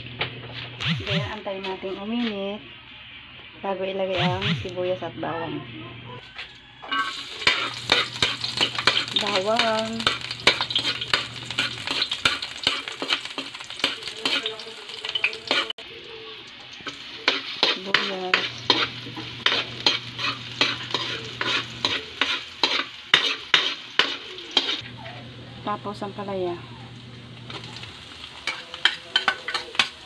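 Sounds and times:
garlic and onion sizzling in oil: 0:06.2 - 0:30.0
metal ladle scraping a wok: 0:06.8 - 0:14.6, 0:16.8 - 0:24.8.

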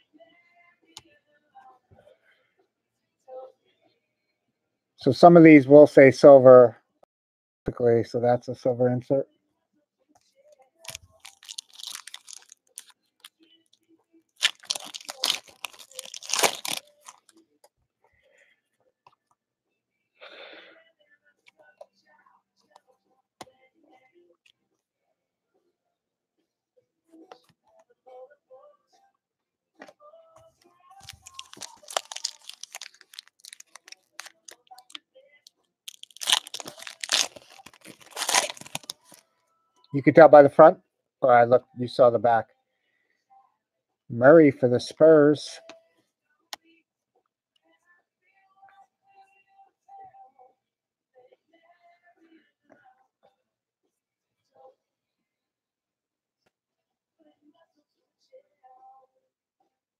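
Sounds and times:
foil wrapper tearing: 0:10.9 - 0:12.9, 0:14.4 - 0:17.3, 0:31.0 - 0:35.0, 0:35.9 - 0:39.2
foil wrapper crinkling: 0:10.9 - 0:13.4, 0:14.4 - 0:17.3, 0:31.0 - 0:35.0, 0:35.9 - 0:39.2.

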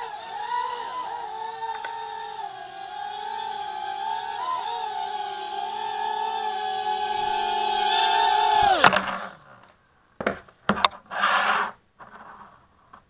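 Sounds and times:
drone motors whining: 0:00.0 - 0:09.4.

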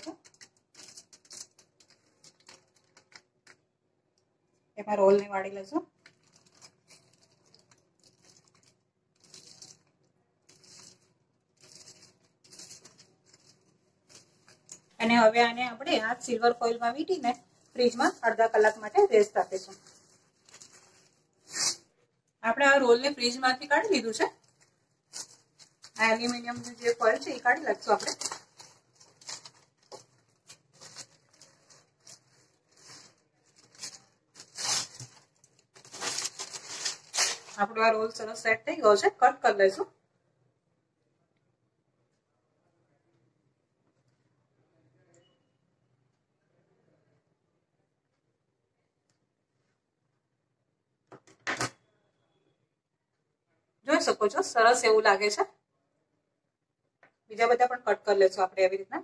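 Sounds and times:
aluminium foil crinkling: 0:00.0 - 0:03.6, 0:05.9 - 0:15.0, 0:17.2 - 0:21.8, 0:23.9 - 0:37.7.

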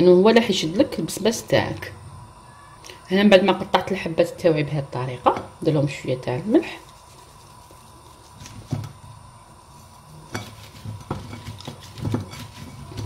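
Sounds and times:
soft rubbing: 0:06.5 - 0:13.0.

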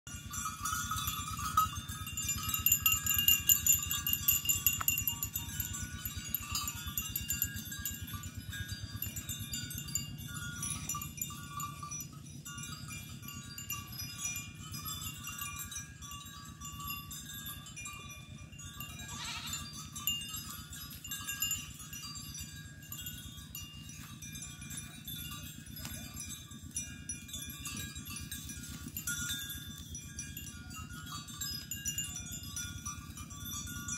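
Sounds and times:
high ringing tones: 0:00.1 - 0:33.9
goat bleating: 0:19.0 - 0:19.7.

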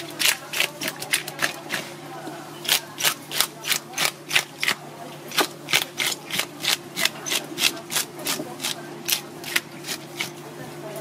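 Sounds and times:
fish scaler scraping scales: 0:02.6 - 0:10.4.

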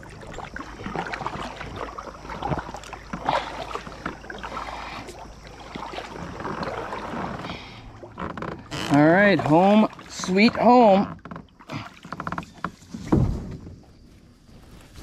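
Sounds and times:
paddle splashing in water: 0:00.0 - 0:14.1.

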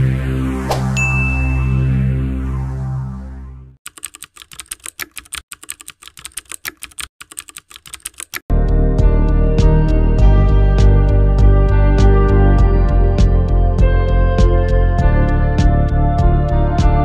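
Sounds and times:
keyboard typing clicks: 0:03.9 - 0:08.5
music: 0:08.5 - 0:17.0.

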